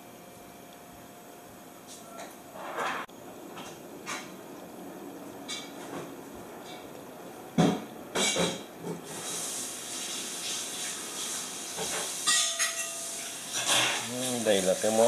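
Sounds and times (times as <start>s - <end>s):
butter sizzling in a pan: 9.0s - 15.0s.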